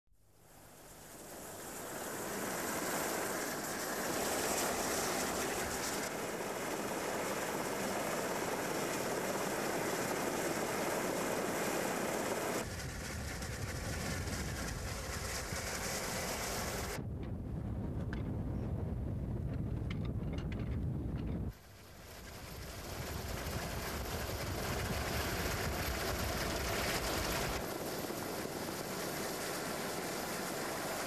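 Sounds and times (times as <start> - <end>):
wind: 0.2 - 31.0
water cannons spraying: 1.2 - 6.1.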